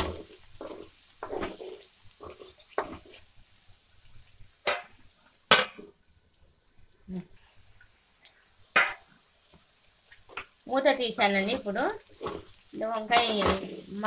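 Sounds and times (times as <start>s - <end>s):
metal spoon stirring and scraping: 0.0s - 3.4s, 11.4s - 14.0s
faint sizzle: 0.0s - 14.0s.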